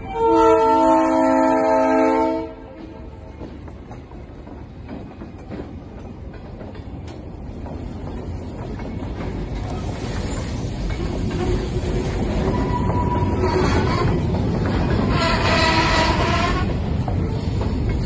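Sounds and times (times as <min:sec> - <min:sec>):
freight train rumbling: 0:00.0 - 0:18.0
wheels clacking over rail joints: 0:02.2 - 0:18.0.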